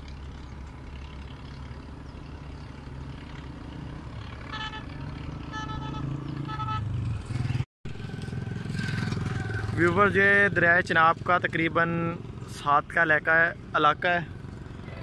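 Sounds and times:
vehicle engine approaching: 0:00.0 - 0:15.0
car horn toots: 0:04.5 - 0:07.0.

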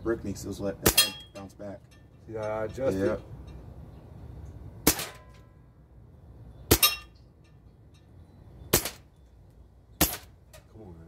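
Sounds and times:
air rifle shots: 0:04.8 - 0:05.4, 0:08.7 - 0:09.1, 0:10.0 - 0:10.4.

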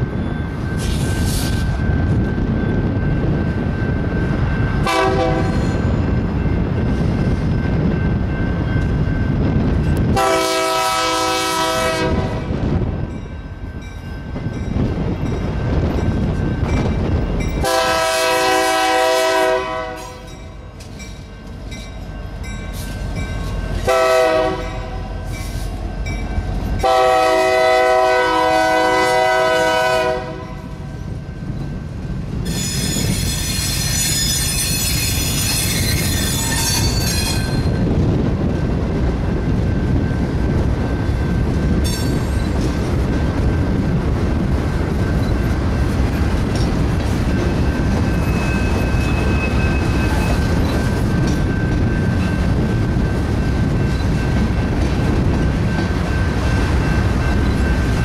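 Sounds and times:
rumble of passing train: 0:00.0 - 0:58.0
locomotive horn: 0:04.8 - 0:05.6, 0:10.2 - 0:12.6, 0:17.6 - 0:20.3, 0:23.8 - 0:25.0, 0:26.8 - 0:30.7.

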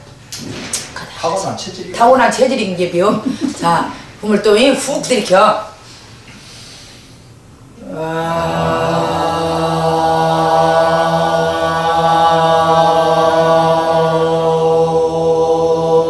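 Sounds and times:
voices holding a long note: 0:07.8 - 0:16.0.

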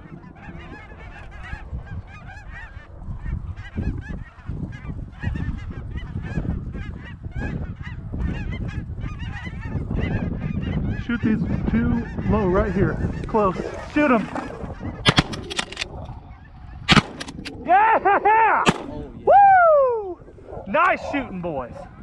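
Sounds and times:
flock of geese honking: 0:00.0 - 0:15.0.

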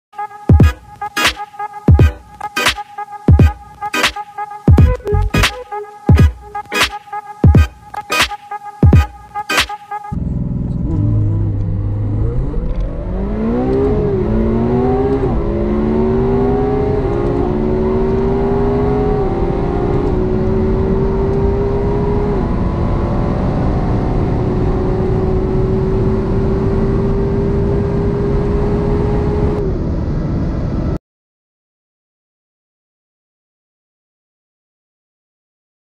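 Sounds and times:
car engine accelerating: 0:10.2 - 0:30.8.

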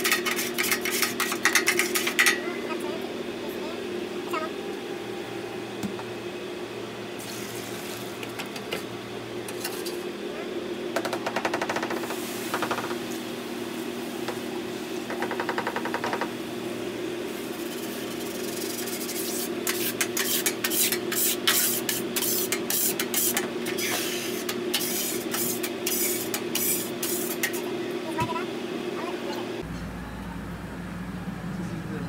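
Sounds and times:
metal scraper scraping griddle: 0:00.0 - 0:02.4, 0:09.5 - 0:10.0, 0:17.6 - 0:27.7.

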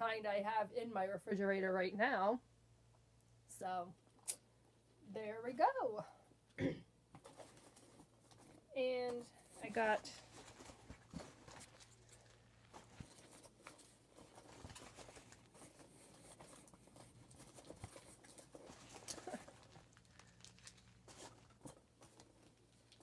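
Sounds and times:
paper packaging rustling: 0:07.2 - 0:23.0.

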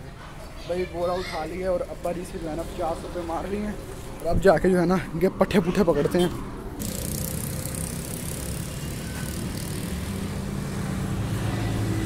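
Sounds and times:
motor humming: 0:06.8 - 0:10.8.

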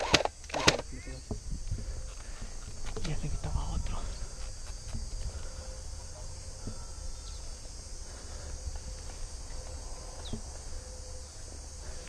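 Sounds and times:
high insect buzz: 0:00.0 - 0:12.0
low rumble on microphone: 0:00.9 - 0:07.3.

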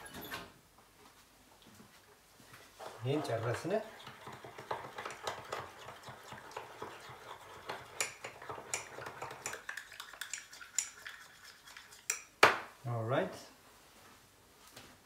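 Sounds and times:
spoon clinking and scraping ramekin: 0:03.0 - 0:12.3.

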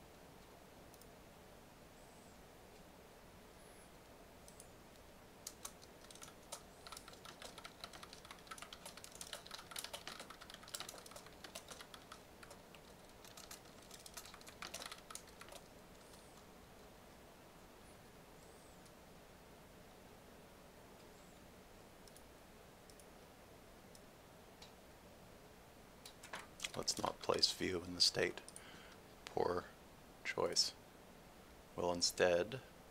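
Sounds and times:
computer keyboard typing: 0:05.4 - 0:16.4, 0:26.1 - 0:27.4.

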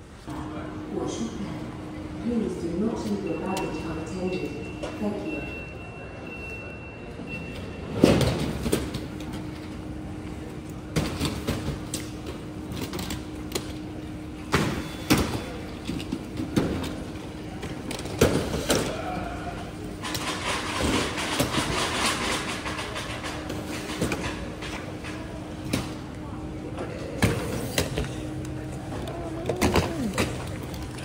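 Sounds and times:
steady hum: 0:00.0 - 0:05.3.

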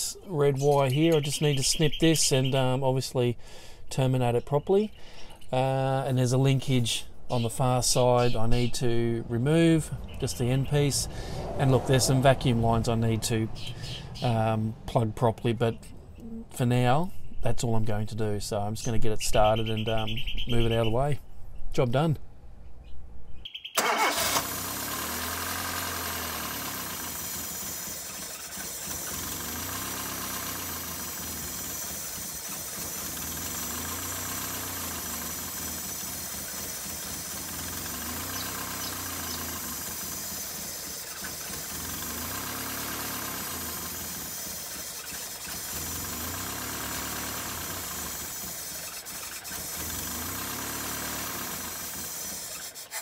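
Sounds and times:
car engine idling: 0:06.6 - 0:16.2, 0:23.8 - 0:53.0.

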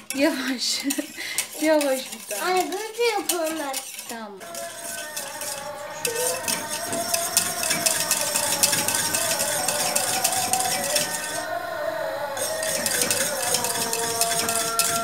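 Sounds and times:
whisk scraping metal pot: 0:00.0 - 0:15.0
steady wavering tone: 0:04.5 - 0:15.0.

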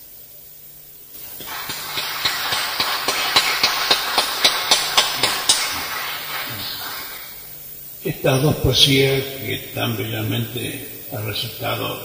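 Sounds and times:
audience applauding: 0:01.2 - 0:07.4
sharp hand claps: 0:01.2 - 0:07.4.

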